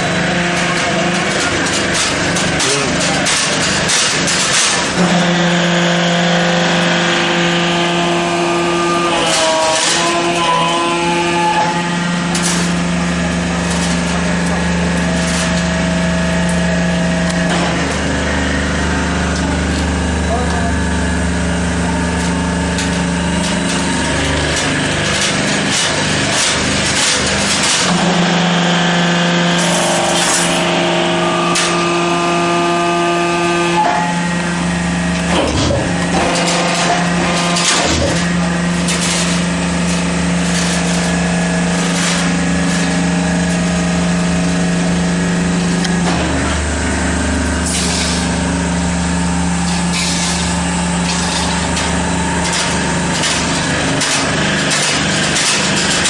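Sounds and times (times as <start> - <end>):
machine motor and pump hum: 0.0 - 56.0
machine parts knocking: 49.6 - 56.0.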